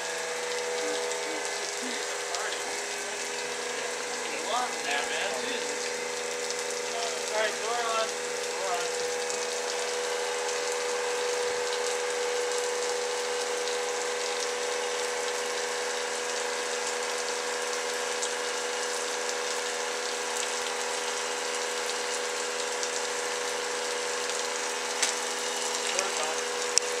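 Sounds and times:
steam hissing: 0.0 - 13.4
steady hum: 0.0 - 27.0.

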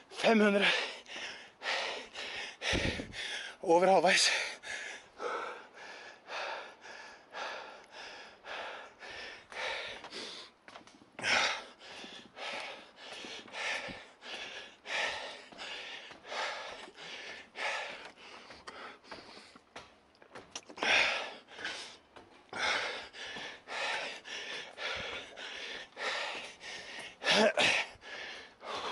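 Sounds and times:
man breathing hard: 0.0 - 3.6, 4.2 - 28.9.

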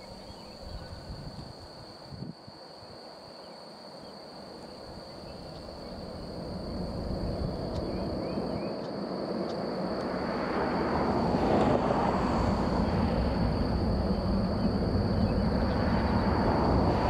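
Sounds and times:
jet airliner landing: 5.8 - 17.0.

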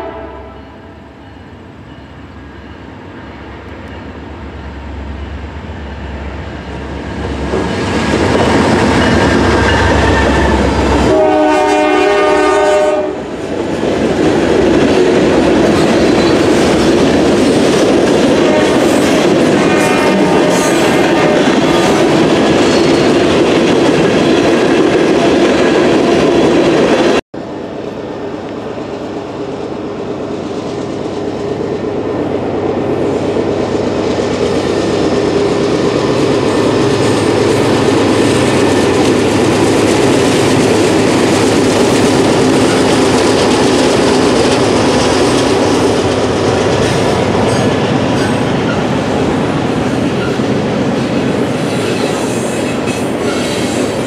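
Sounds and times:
train rolling over steel bridge: 0.0 - 54.0
freight train wheels clattering: 13.4 - 27.2, 30.3 - 54.0.

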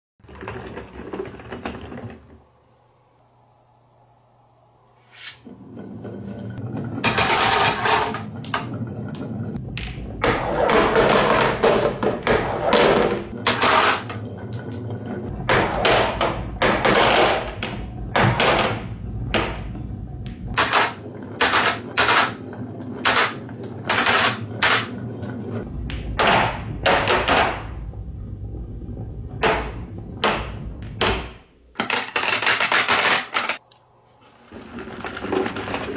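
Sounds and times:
glass marbles rolling on wood: 5.7 - 11.9
marbles dropping into plastic truck: 34.5 - 35.9.

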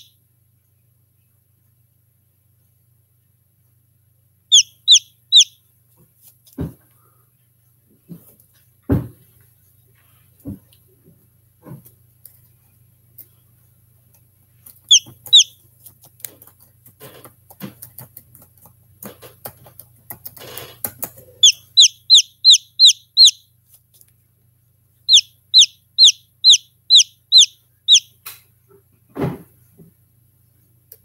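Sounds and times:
chick peeping: 4.5 - 5.6, 14.7 - 15.6, 20.9 - 23.4, 25.1 - 28.2.

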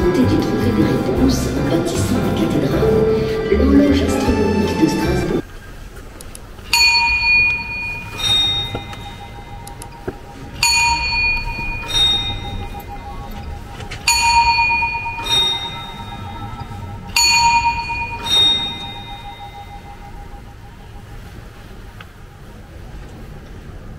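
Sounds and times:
clock bells ding-dong: 6.7 - 21.1.

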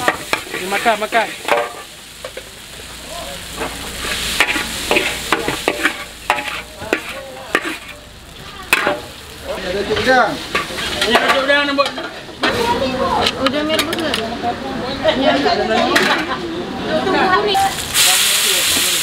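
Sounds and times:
spatula scraping a wok: 0.0 - 2.6, 3.5 - 8.1, 10.4 - 12.8
noodles sizzling in a wok: 0.0 - 13.0, 17.3 - 19.0.

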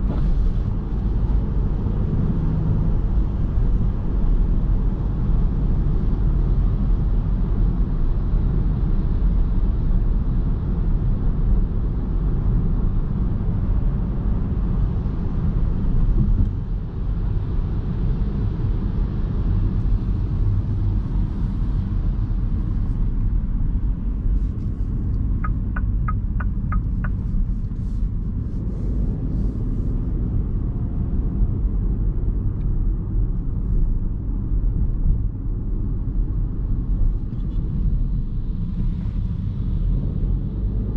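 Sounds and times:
road and tyre noise in car: 0.0 - 40.9
quick ticks: 25.4 - 27.2.

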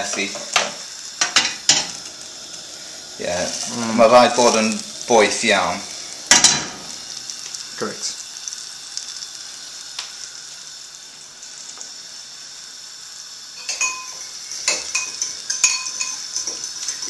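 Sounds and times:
oil and butter sizzling in pan: 0.0 - 17.0
cutlery clinking on crockery: 13.6 - 17.0.

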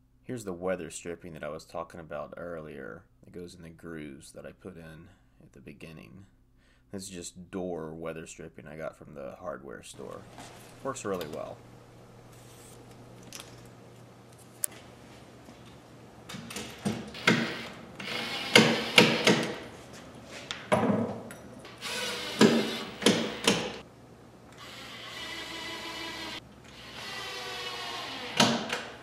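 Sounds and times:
cordless drill running: 17.1 - 19.6, 21.7 - 23.8, 24.5 - 28.8.

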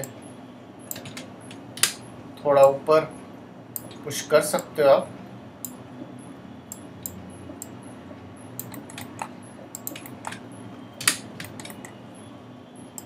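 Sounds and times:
mouse and keyboard clicks: 8.6 - 10.4.

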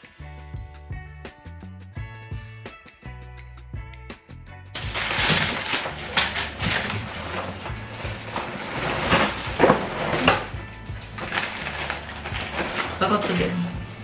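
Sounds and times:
groceries knocking and clattering: 4.8 - 14.0
plastic bags rustling: 4.8 - 14.0.

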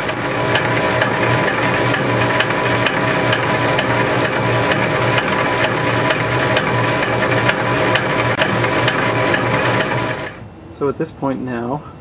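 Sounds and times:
cutter ticking on metal: 0.0 - 10.4
lathe motor and belt hum: 0.0 - 10.4.

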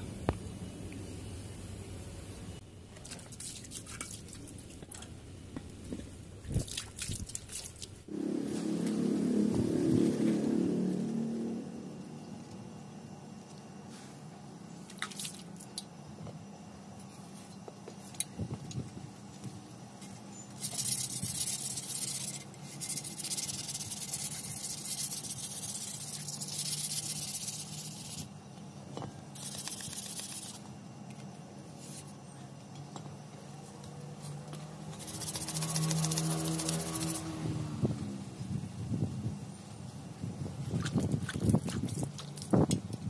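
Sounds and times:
low steady hum: 0.0 - 43.0
sandpaper rubbing on metal pipe: 20.6 - 28.3, 29.4 - 30.6, 35.0 - 37.2.

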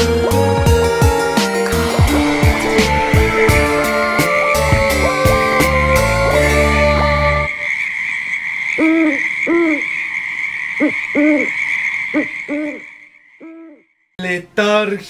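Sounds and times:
steady high drone: 0.8 - 7.4
owl hooting: 8.8 - 13.9.

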